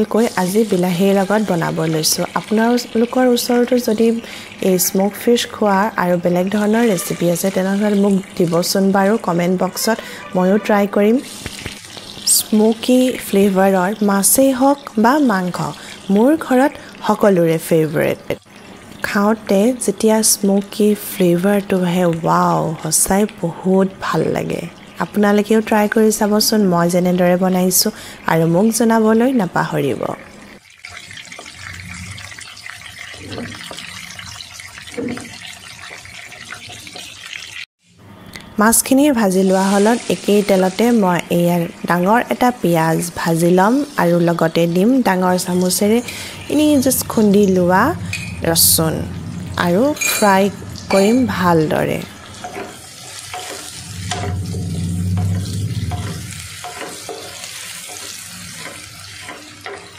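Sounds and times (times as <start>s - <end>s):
fish frying in oil: 0.0s - 38.0s, 38.7s - 48.2s, 49.8s - 59.9s
spatula scraping wok: 9.8s - 11.7s, 45.8s - 59.9s
low hum: 46.1s - 52.3s, 53.7s - 56.6s
spatula scraping and tapping pan: 52.3s - 59.9s.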